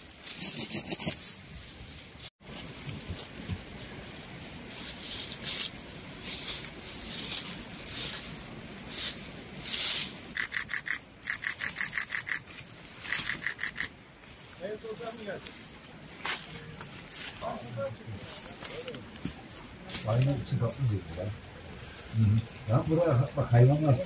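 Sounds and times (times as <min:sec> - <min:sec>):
rustles in leaf litter: 0:00.0 - 0:10.4, 0:14.1 - 0:24.0
footsteps on dry leaves: 0:01.1 - 0:10.4, 0:12.4 - 0:20.4.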